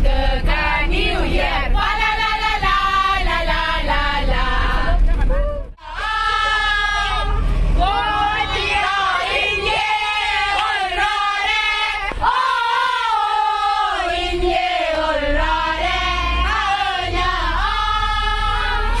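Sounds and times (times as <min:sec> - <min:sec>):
choir singing in unison: 0:00.0 - 0:04.9, 0:05.8 - 0:19.0
bus rumble: 0:00.0 - 0:19.0.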